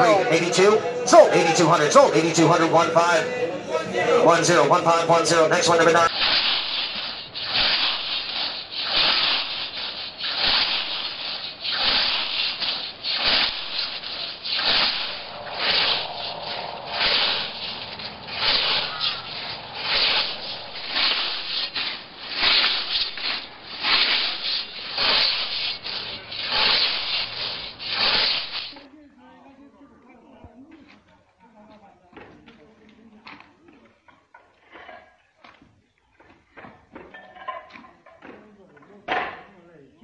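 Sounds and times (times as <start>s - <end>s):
scythe swishing through grass: 6.1s - 28.8s.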